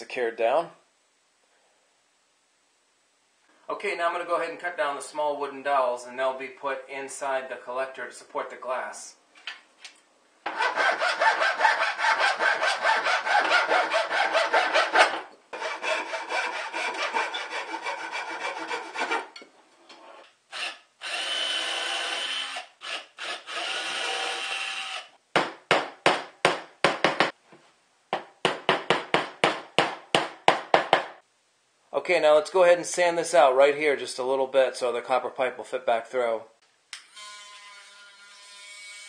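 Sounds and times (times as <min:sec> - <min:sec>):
hand saw cutting wood: 0:10.5 - 0:19.4
hammer knocking on wood: 0:25.4 - 0:27.4, 0:28.1 - 0:31.2.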